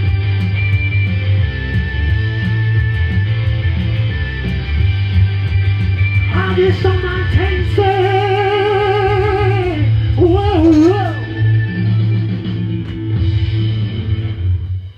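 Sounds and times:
bass line: 0.0 - 14.9
strummed electric guitar: 0.0 - 14.9
man singing wordless notes: 6.3 - 11.4.

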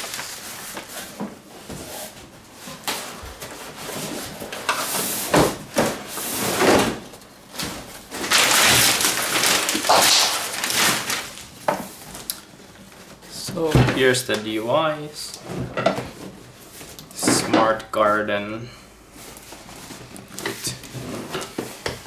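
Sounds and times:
wrapping paper tearing and crinkling: 0.0 - 1.1, 8.1 - 11.6.

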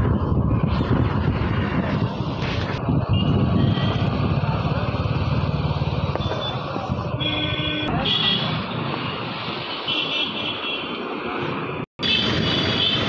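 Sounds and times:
street traffic: 0.0 - 13.0
motorcycle engine running: 3.4 - 7.0.

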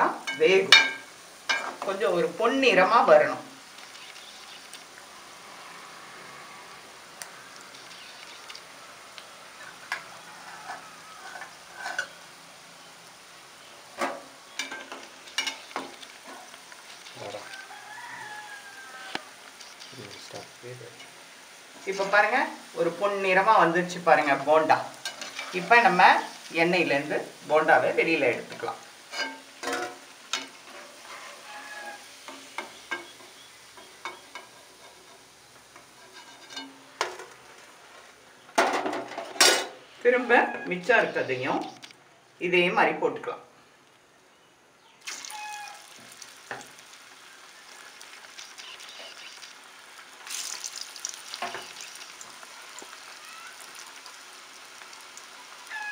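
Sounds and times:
food sizzling in hot oil: 0.0 - 41.9, 45.0 - 55.9
metal spoon stirring oil: 0.2 - 2.0, 9.6 - 12.3, 14.0 - 20.2, 21.0 - 21.2, 21.8 - 27.0, 27.7 - 37.6, 45.0 - 55.9
metal skimmer clinking on pan: 0.3 - 1.7
oil popping: 45.0 - 55.9.

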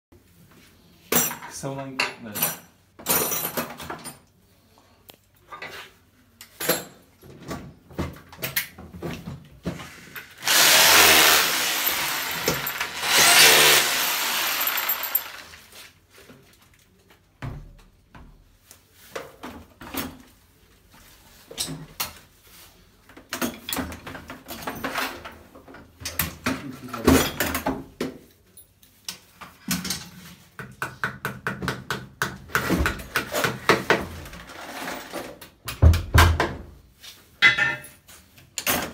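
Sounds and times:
power drill boring into wall: 10.3 - 15.7.

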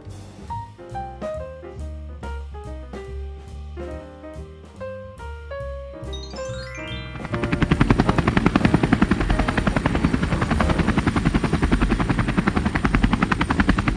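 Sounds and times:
rising musical sweep: 6.1 - 9.8
helicopter rotor chopping: 7.1 - 13.9.

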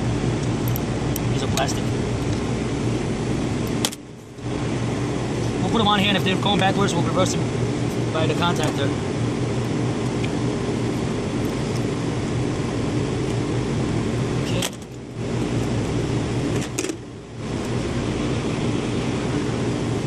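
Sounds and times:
condenser fans humming: 0.0 - 20.0.

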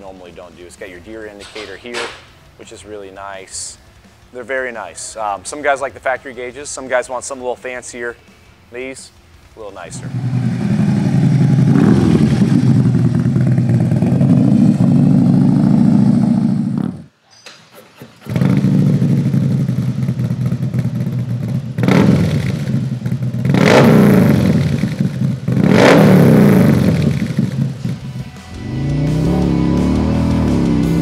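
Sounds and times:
motorcycle engine revving: 9.9 - 17.1, 18.2 - 31.0
motorcycle engine running loud: 9.9 - 17.1, 18.3 - 31.0.

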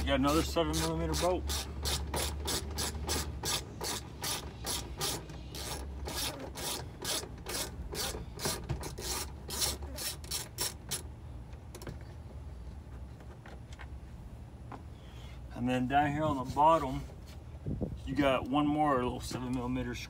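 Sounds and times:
hand ratchet clicking: 0.8 - 11.1.

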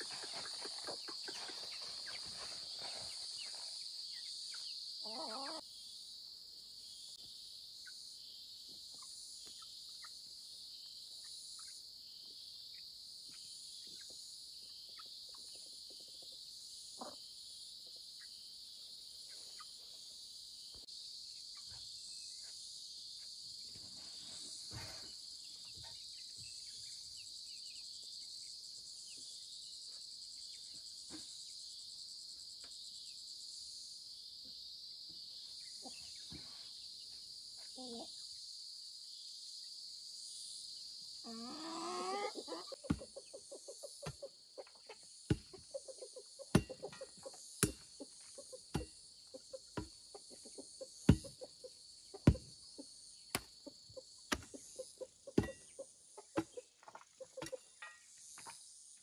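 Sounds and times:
chicken clucks: 0.0 - 5.6, 13.3 - 18.4, 35.6 - 36.7, 37.6 - 38.2, 41.3 - 58.6
insect chorus drone: 0.0 - 59.0.

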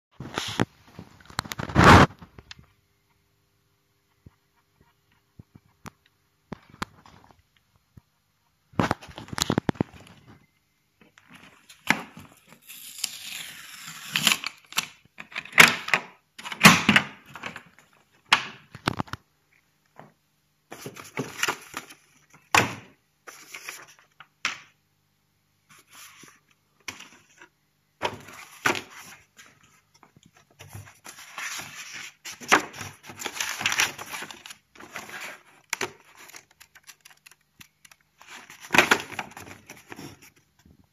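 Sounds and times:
paper and plastic bags rustling: 30.3 - 40.4.

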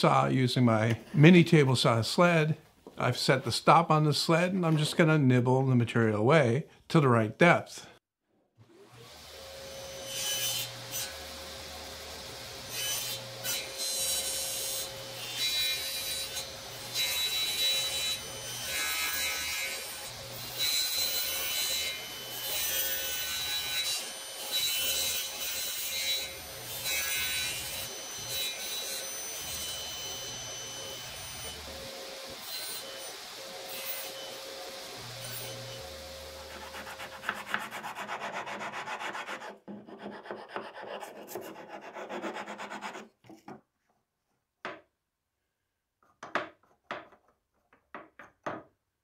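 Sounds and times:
table saw humming: 8.8 - 43.0
saw cutting wood: 8.8 - 43.1.

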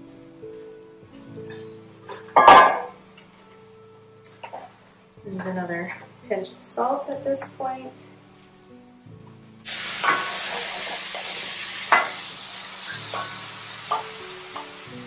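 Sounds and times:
mushrooms sizzling in a frying pan: 4.5 - 15.0.

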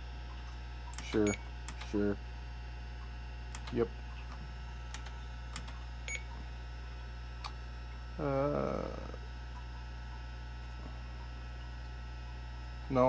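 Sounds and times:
computer fan and drive hum: 0.0 - 13.0
keyboard clicks: 0.9 - 2.0, 3.5 - 3.8, 4.9 - 5.8
short hummed voice: 7.9 - 13.0.

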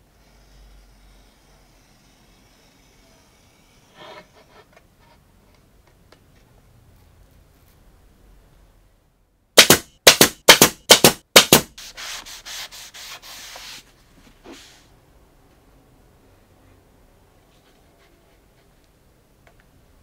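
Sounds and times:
rag rubbing on wood: 11.8 - 13.8.

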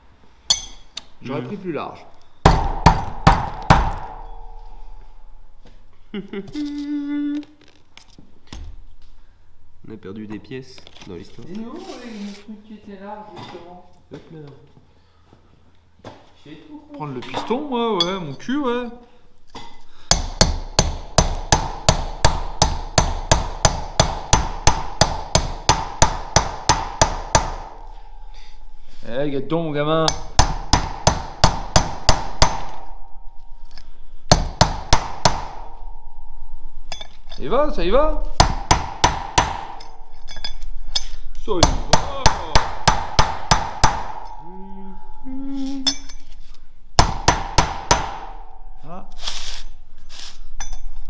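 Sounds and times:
hammer tapping metal: 0.5 - 1.0, 2.4 - 5.2, 19.5 - 28.6, 30.0 - 37.6, 38.2 - 46.2, 47.0 - 48.8.

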